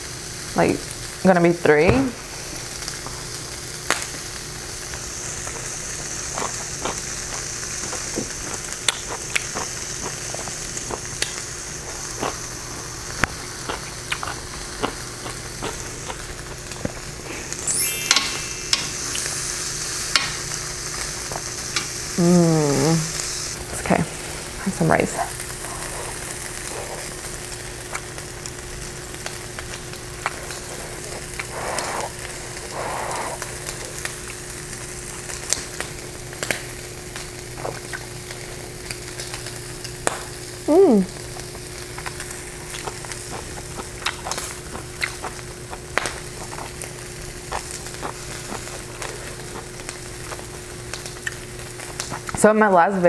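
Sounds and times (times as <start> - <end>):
meat sizzling on a grill: 0.0 - 53.0
steady hum: 0.9 - 53.0
chewing: 4.9 - 17.2, 25.2 - 28.6, 29.2 - 34.4, 35.5 - 40.4, 41.1 - 52.4.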